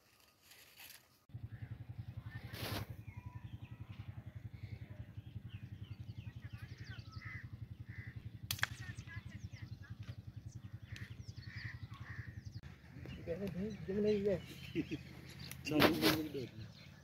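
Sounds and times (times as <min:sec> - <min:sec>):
engine idling: 0:01.3 - 0:17.0
small birds chirping: 0:01.3 - 0:17.0
sharp crack: 0:08.5 - 0:09.0, 0:15.4 - 0:16.4.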